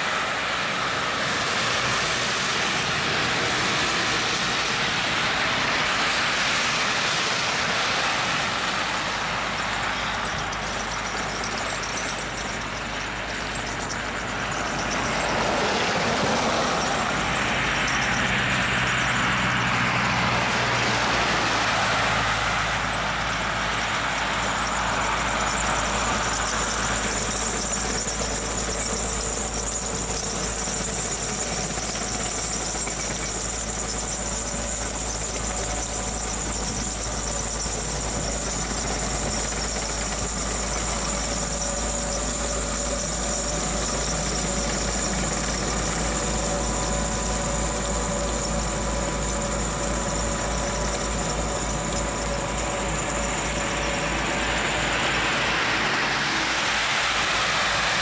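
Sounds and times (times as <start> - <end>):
continuous high-pitched squeal: 0.0 - 58.0
diesel engine rumbling: 0.0 - 58.0.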